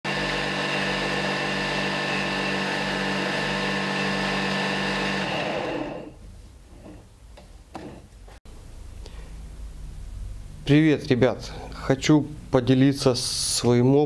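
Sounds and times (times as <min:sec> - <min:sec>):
chisel cutting spinning wood: 0:00.1 - 0:06.1
wood lathe motor humming: 0:00.1 - 0:06.1.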